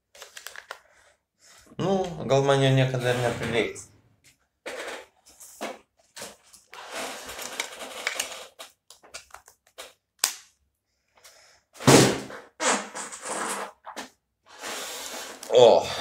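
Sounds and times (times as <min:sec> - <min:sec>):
plastic clicks and rustling: 0:00.1 - 0:00.9, 0:06.1 - 0:10.4.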